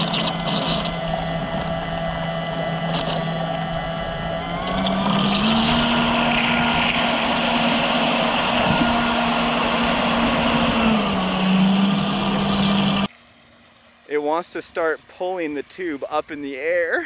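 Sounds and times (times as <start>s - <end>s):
electric motor whine: 0.0s - 13.1s
water rushing and spraying: 4.5s - 17.0s.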